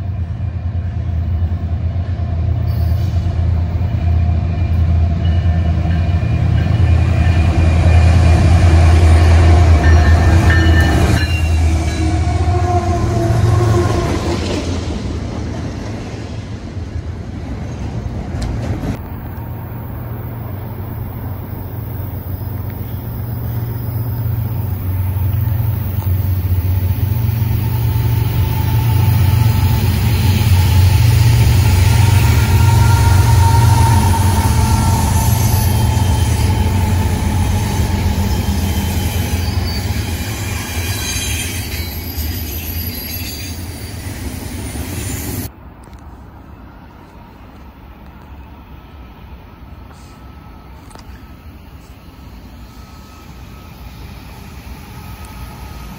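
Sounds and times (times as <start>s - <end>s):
freight train rumbling past: 0.0s - 55.9s
train wheel squeal: 2.5s - 12.7s, 21.8s - 45.5s, 49.9s - 55.9s.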